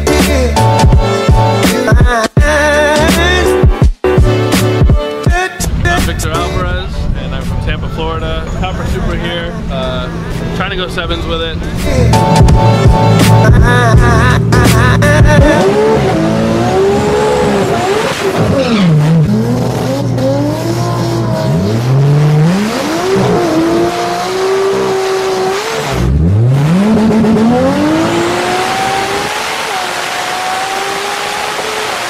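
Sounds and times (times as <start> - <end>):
car engine revving hard: 11.6 - 32.0.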